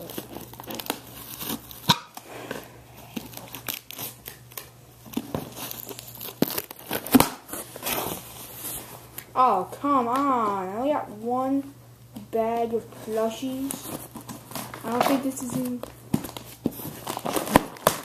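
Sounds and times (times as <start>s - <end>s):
plastic packaging crinkling and tearing: 0.0s - 9.3s, 13.4s - 18.0s.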